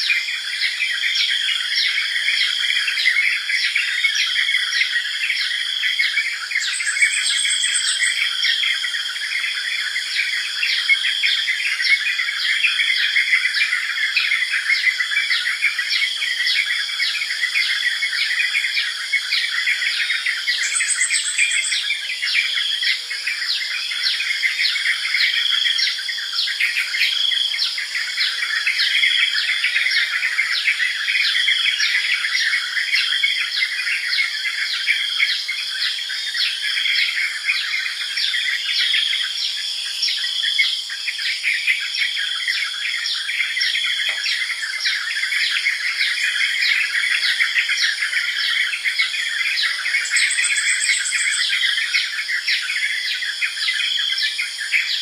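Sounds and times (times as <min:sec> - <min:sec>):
birds chattering with short chirps: 0:06.0 - 0:08.7, 0:20.0 - 0:25.3, 0:43.2 - 0:51.8.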